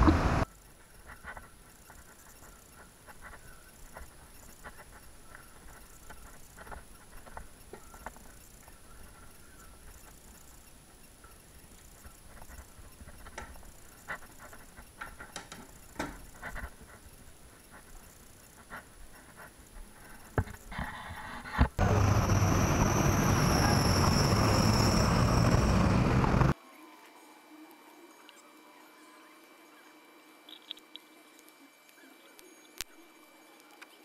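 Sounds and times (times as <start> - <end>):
street noise: 0.0 - 0.5, 21.7 - 26.6
thin high whine: 0.0 - 15.0, 15.6 - 34.0.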